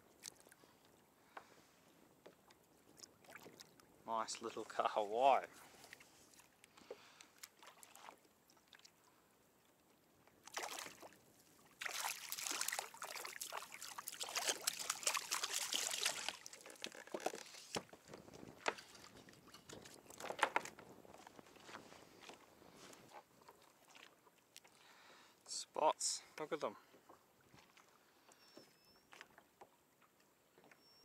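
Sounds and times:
fish splashing at water surface: 10.5 - 11.2, 11.8 - 17.2.

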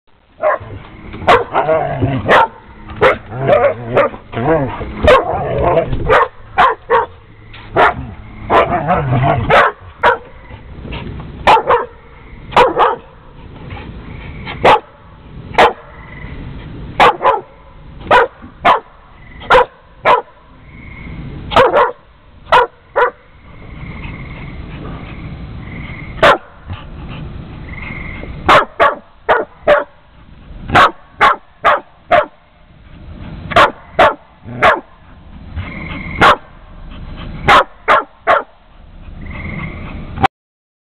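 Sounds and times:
dog barking: 0.4 - 4.2, 5.0 - 10.3, 11.5 - 13.1, 14.6 - 14.9, 15.6 - 15.9, 17.0 - 17.5, 18.1 - 18.9, 19.5 - 20.4, 21.5 - 23.2, 26.2 - 26.5, 28.5 - 30.0, 30.7 - 32.4, 33.5 - 34.9, 36.2 - 36.5, 37.5 - 38.5.

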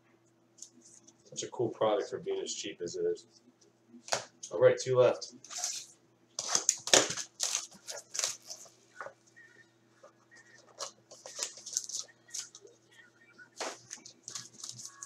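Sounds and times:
wrapping tearing and crinkling: 5.5 - 8.7, 10.6 - 12.7, 13.6 - 15.0.

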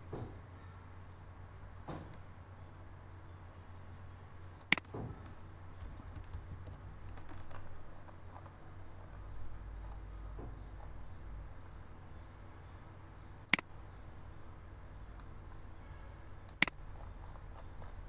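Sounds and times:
low steady hum: 0.0 - 18.0
computer mouse clicks: 4.6 - 10.0, 16.5 - 18.0.

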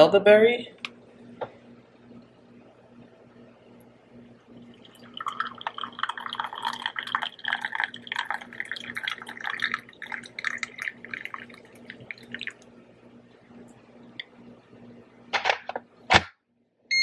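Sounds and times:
dripping: 4.6 - 12.7
liquid pouring into mug: 4.6 - 12.7.

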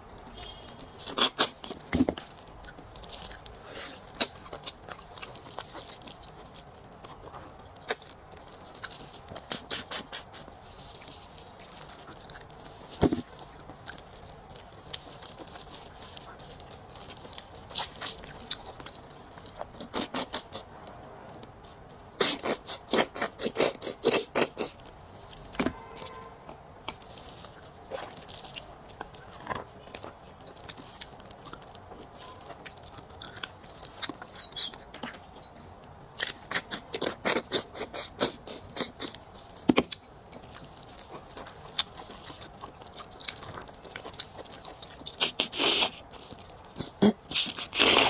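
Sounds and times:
mouth clicks and chewing: 0.0 - 48.0
wet slurping and sucking: 45.1 - 46.0, 47.3 - 48.0.

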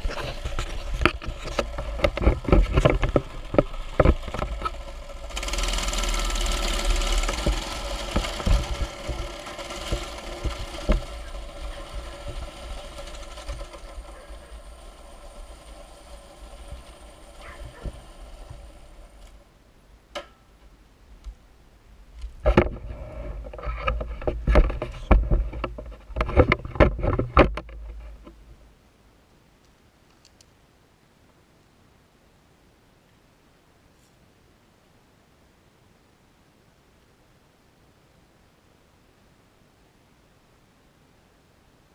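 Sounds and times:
sharp knocks and thumps: 0.0 - 4.9, 7.1 - 14.2, 22.4 - 28.4
small engine running: 0.0 - 19.5.

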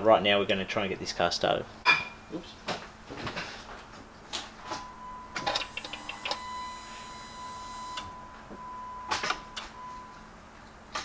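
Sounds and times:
car electronic warning tone: 4.6 - 10.2
sharp clicks: 5.4 - 6.4.

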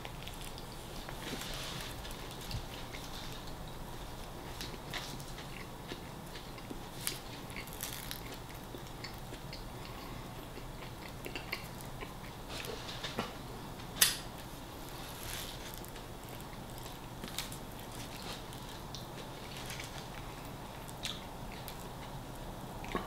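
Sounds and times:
person chewing: 0.0 - 12.9, 14.4 - 23.0
paper wrapper crinkling: 14.8 - 20.1.

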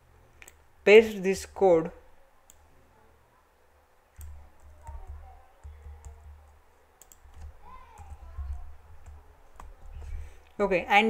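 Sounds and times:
keyboard and mouse clicks: 0.4 - 0.6, 4.2 - 10.2.

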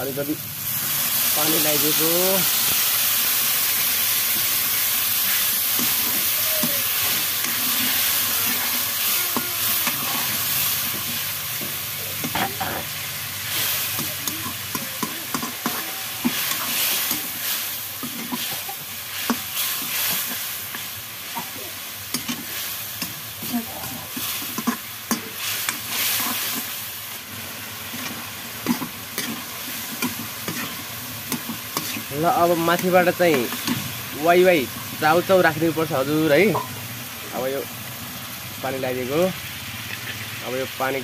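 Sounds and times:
water sizzling in hot pan: 0.0 - 41.0
metal ladle scraping pan: 5.3 - 20.8.

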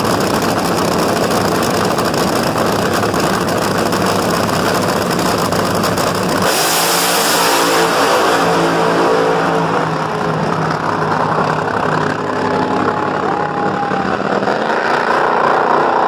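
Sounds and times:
drag racing car engine: 0.0 - 16.0.

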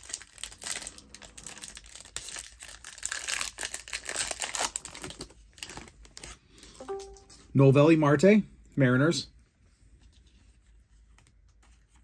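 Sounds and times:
wrapper crinkling and tearing: 0.0 - 7.2.

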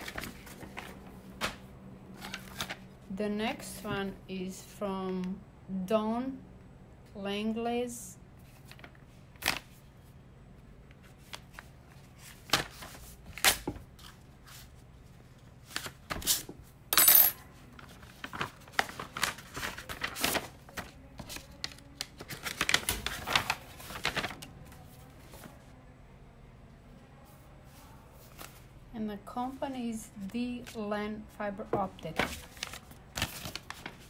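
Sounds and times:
paper rustling: 0.0 - 2.8, 8.4 - 9.8, 11.0 - 16.5, 17.7 - 25.6, 27.3 - 28.7, 31.8 - 34.0
envelope being opened: 17.8 - 24.5, 32.2 - 34.0.

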